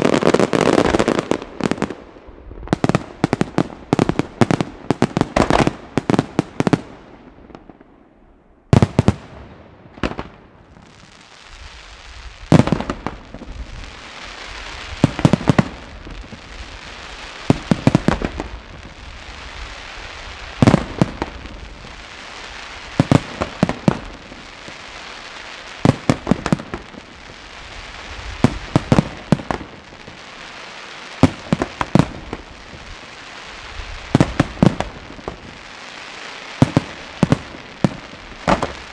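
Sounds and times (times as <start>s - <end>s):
steady hiss: 10.9s - 38.9s.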